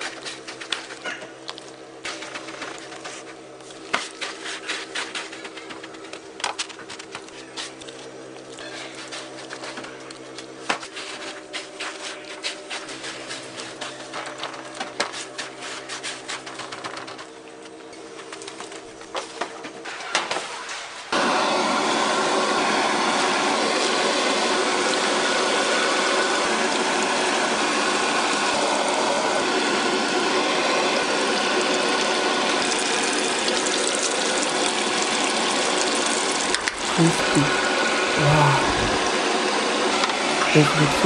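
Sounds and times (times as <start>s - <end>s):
deep-frying sizzle and crackle: 0.0s - 11.2s, 22.4s - 37.2s.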